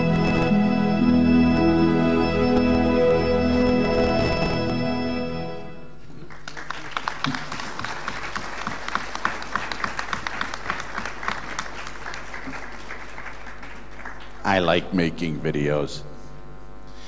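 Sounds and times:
held music chord: 0:00.0 - 0:06.0
audience applauding: 0:06.1 - 0:14.7.

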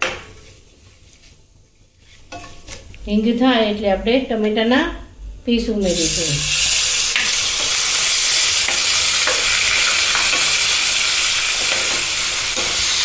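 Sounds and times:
tomatoes sizzling in hot oil: 0:05.8 - 0:13.0.

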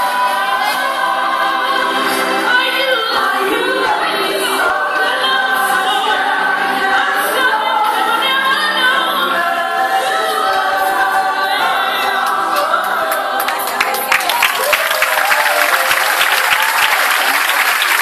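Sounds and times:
choir singing: 0:00.0 - 0:14.3
audience applause: 0:13.1 - 0:18.0.

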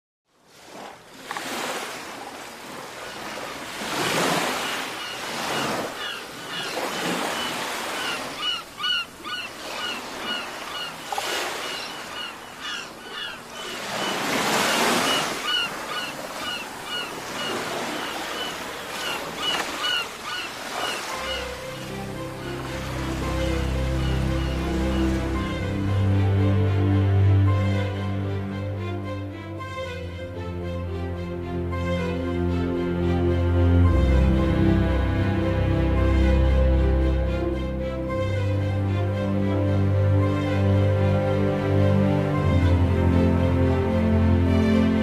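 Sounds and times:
sea waves breaking on shore: 0:00.4 - 0:28.4
birds chirping: 0:03.2 - 0:21.6.

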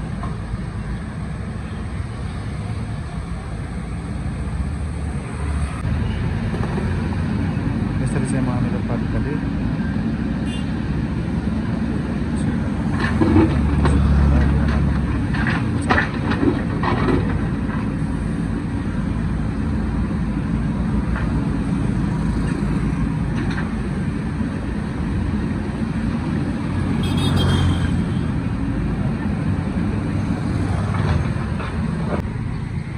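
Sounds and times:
knocks and clanks: 0:12.8 - 0:18.0.

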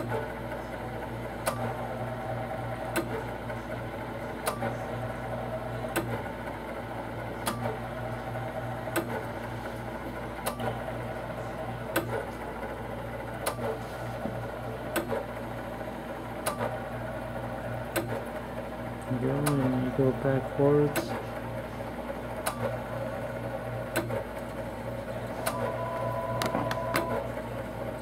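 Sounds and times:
machine humming: 0:14.4 - 0:28.0.

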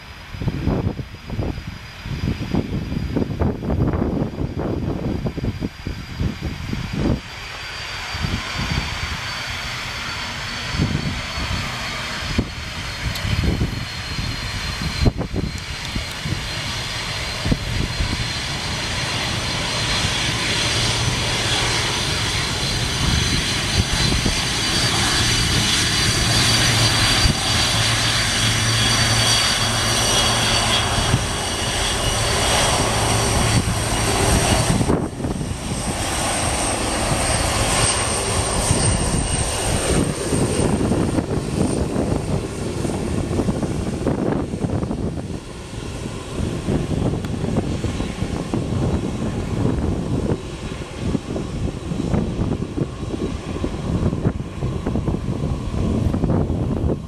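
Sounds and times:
jet engines whining: 0:00.0 - 0:57.0
low gusty buffeting: 0:00.0 - 0:57.0.

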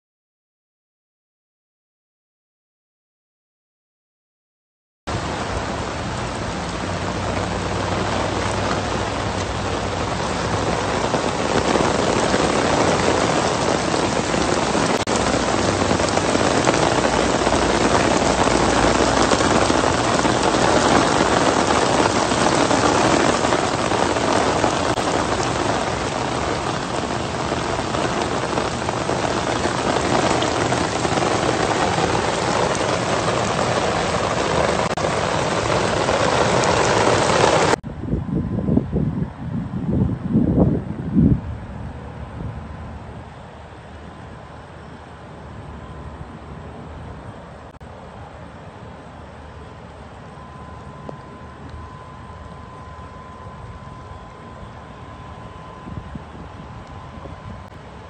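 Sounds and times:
heavy rain on floodwater: 0:05.1 - 0:37.8, 0:47.5 - 0:58.0.

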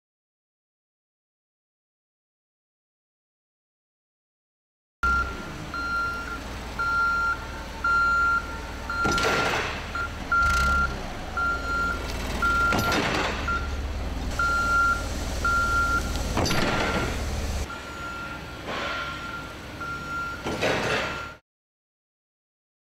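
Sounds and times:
forklift engine: 0:05.0 - 0:21.4
reversing backup alarm beeping: 0:05.0 - 0:21.4
loud crashes against guardrail: 0:08.9 - 0:10.1, 0:12.4 - 0:13.7, 0:16.3 - 0:17.6.

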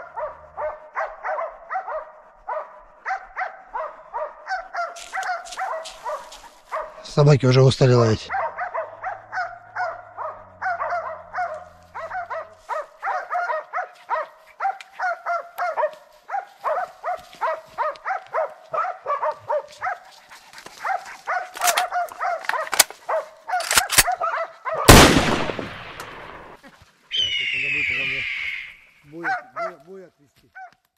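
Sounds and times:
dogs barking: 0:00.0 - 0:07.2, 0:08.0 - 0:25.1, 0:29.0 - 0:30.8
sharp cracks: 0:21.5 - 0:23.0, 0:23.6 - 0:24.2, 0:24.9 - 0:26.6.

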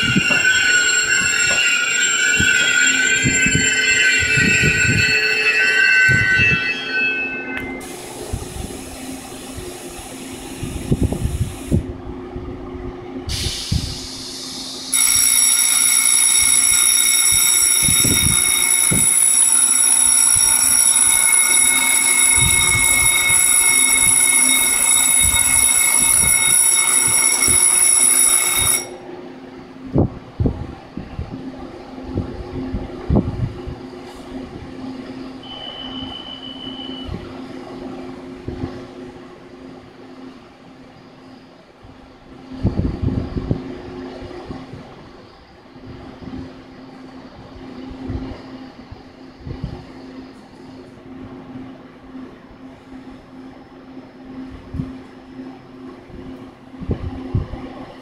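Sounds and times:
high-pitched ringing tone: 0:00.0 - 0:08.0, 0:14.9 - 0:29.1, 0:34.9 - 0:37.4
train brakes squealing: 0:00.0 - 0:09.3, 0:13.3 - 0:15.8, 0:34.0 - 0:37.4.

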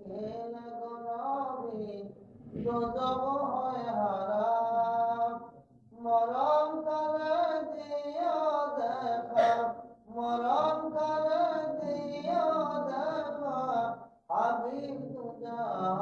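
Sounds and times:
person chanting slow melody: 0:10.4 - 0:13.9.

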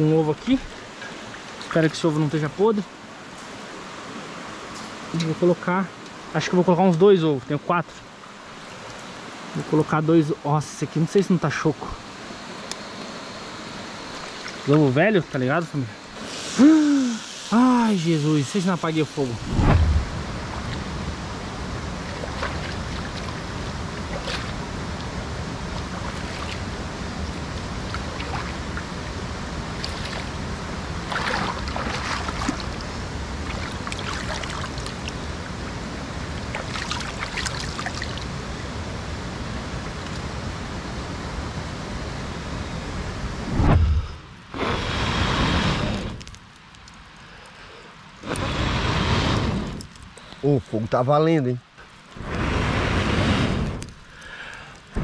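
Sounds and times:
stream running over rocks: 0:00.0 - 0:41.4.

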